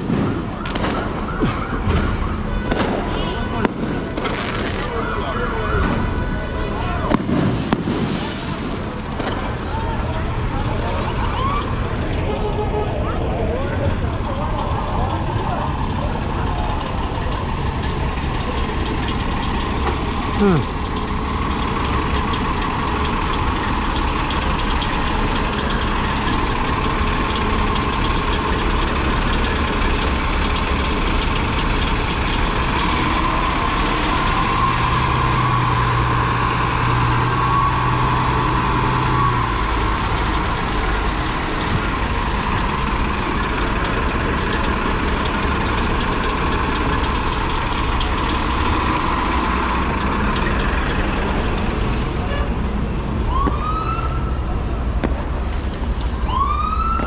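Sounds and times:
siren wailing: 0.0 - 2.9, 4.6 - 7.1, 53.3 - 54.5, 56.2 - 57.0
heavy road traffic rumble: 0.0 - 57.0.

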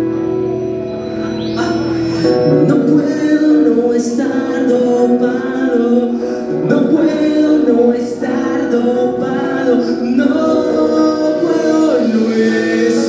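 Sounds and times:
person singing: 1.3 - 13.0.

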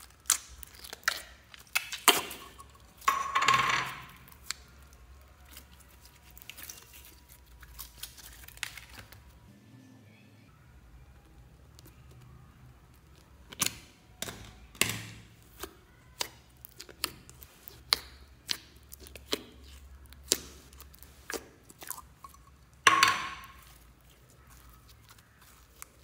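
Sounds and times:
slime sticky pops and crackles: 0.0 - 2.4, 13.1 - 22.1.

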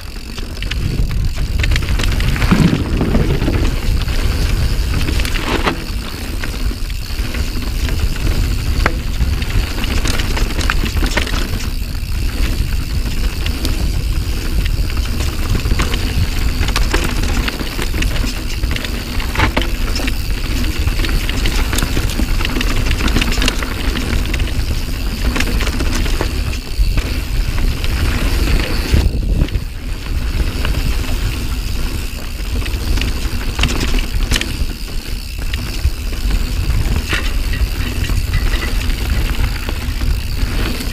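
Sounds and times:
bike rattling and knocking: 0.0 - 40.9
bike tyres on dirt: 0.0 - 40.9
wind buffeting microphone: 0.0 - 40.9.

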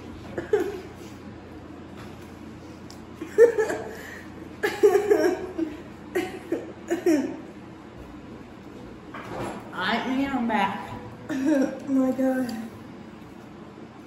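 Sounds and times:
girl laughing: 3.2 - 7.4.

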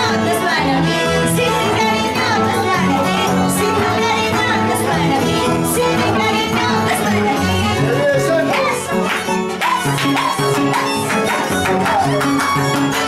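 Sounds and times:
woman singing: 0.0 - 11.0
violin: 0.0 - 13.0.

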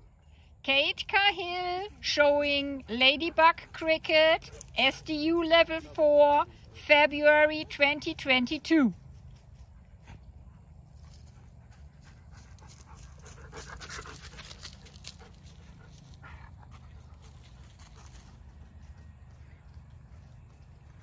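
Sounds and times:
dog panting: 9.3 - 18.7.

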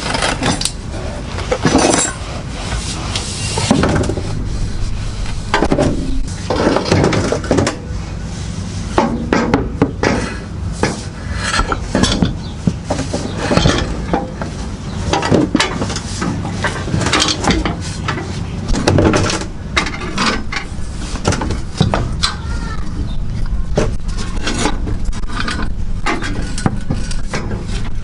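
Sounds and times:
drive shaft clanking against metal: 3.3 - 8.3, 9.0 - 28.0.

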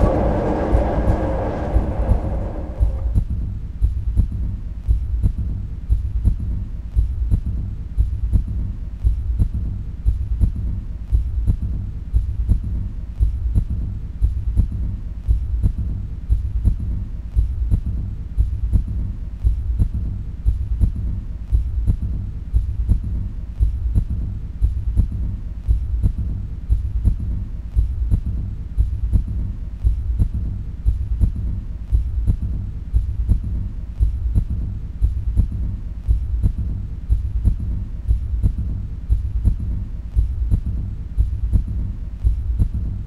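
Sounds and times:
deep low throbbing pulse: 0.0 - 5.6, 16.7 - 43.0
steady low hum: 0.0 - 43.0.

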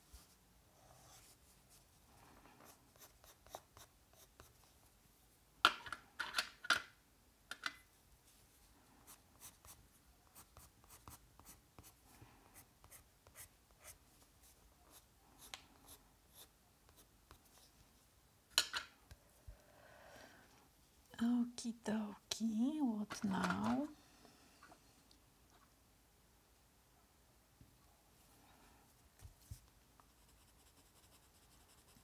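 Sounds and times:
pencil scratching on paper: 2.7 - 4.6, 9.1 - 12.0, 30.1 - 32.0.

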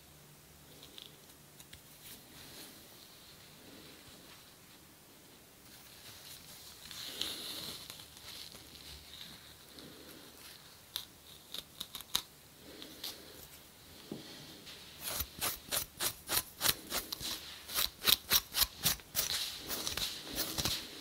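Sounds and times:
scratching strokes on scalp: 14.6 - 21.0.

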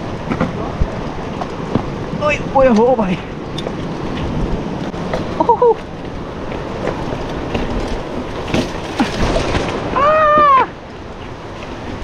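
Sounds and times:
person shouting: 10.0 - 10.8.

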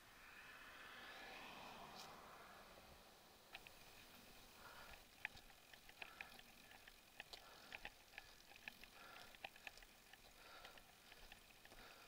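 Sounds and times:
faint small ticks and clicks: 3.5 - 12.0.

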